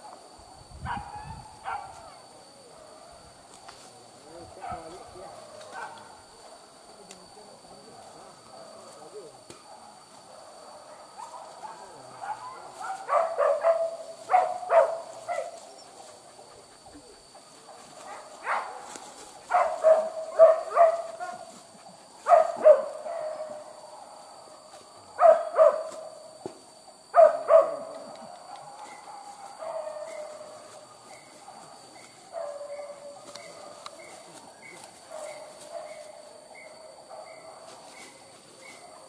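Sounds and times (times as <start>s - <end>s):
dogs barking: 0.9s - 2.2s, 4.6s - 6.8s, 9.6s - 24.3s, 25.0s - 26.0s, 27.1s - 39.0s.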